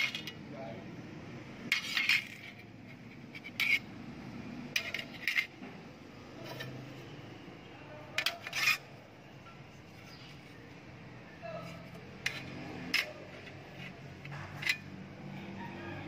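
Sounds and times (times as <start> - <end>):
metal clinks and scrapes on concrete: 0.0 - 0.4, 1.6 - 5.6, 6.3 - 7.5, 8.1 - 10.7, 11.4 - 15.7.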